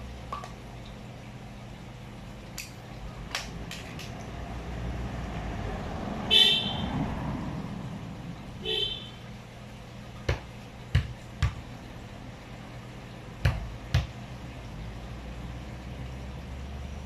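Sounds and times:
vehicle rumbling past: 0:03.5 - 0:09.5
high vehicle horn toots: 0:06.3 - 0:06.9, 0:08.6 - 0:09.2.

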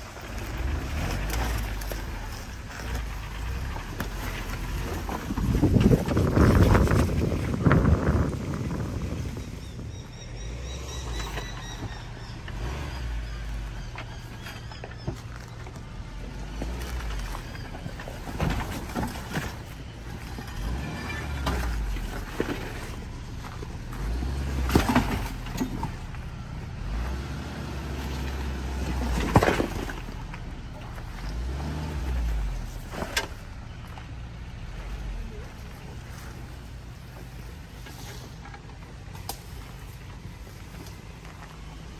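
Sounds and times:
vehicle engine rumbling: 0:00.0 - 0:41.9
vehicle knocks over terrain: 0:00.4 - 0:09.2, 0:14.0 - 0:26.3, 0:26.9 - 0:34.0.

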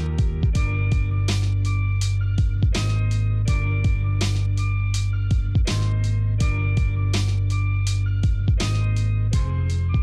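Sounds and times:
deep kick drums: 0:00.0 - 0:01.7, 0:02.3 - 0:04.6, 0:05.3 - 0:07.5, 0:08.2 - 0:10.0
held chords and sustained bass: 0:00.0 - 0:10.0.

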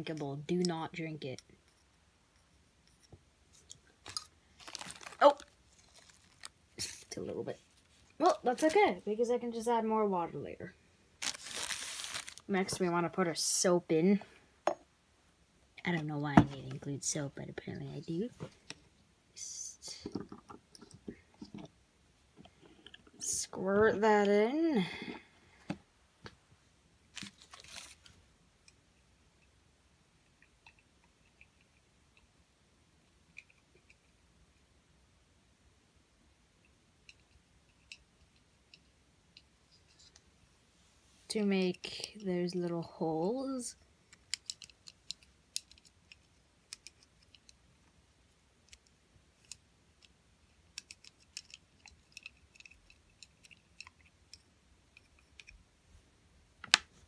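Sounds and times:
small objects clicking and rustling: 0:02.9 - 0:07.1, 0:11.2 - 0:12.5, 0:27.1 - 0:28.2, 0:44.1 - 0:47.6, 0:48.6 - 0:55.6.

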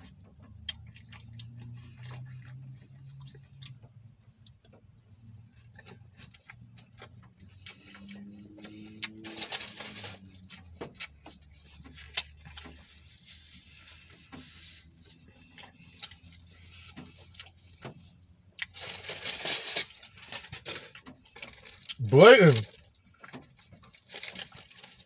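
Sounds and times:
chewing: 0:00.0 - 0:19.1
paper rustling: 0:08.7 - 0:10.4.

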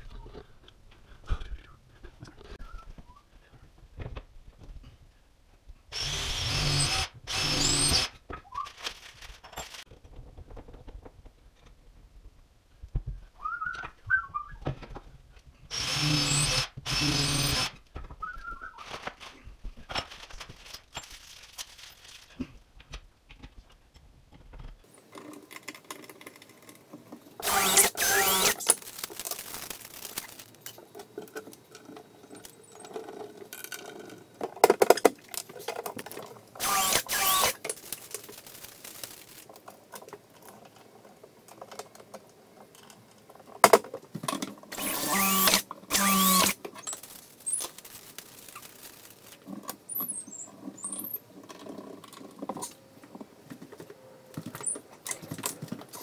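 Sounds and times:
cordless drill running: 0:05.9 - 0:08.1, 0:15.7 - 0:17.7, 0:27.4 - 0:28.7, 0:36.6 - 0:37.6, 0:44.8 - 0:46.6.

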